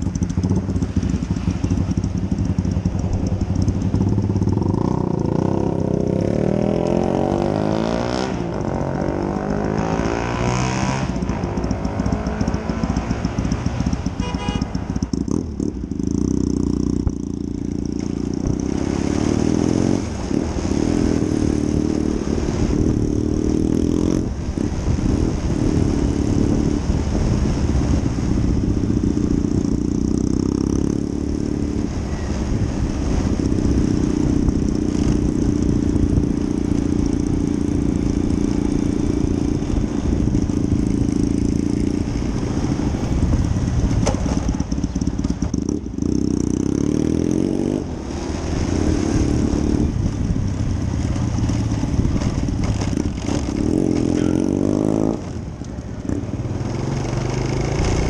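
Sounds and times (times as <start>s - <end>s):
scooter engine: 0.0s - 6.2s, 11.1s - 21.9s, 33.2s - 47.0s, 47.8s - 58.0s
motorcycle exhaust: 0.0s - 58.0s.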